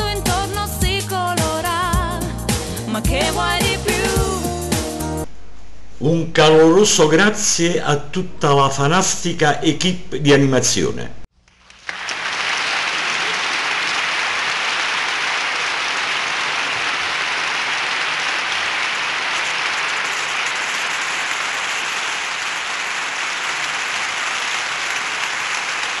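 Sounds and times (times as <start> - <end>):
audience applauding: 11.5 - 26.0.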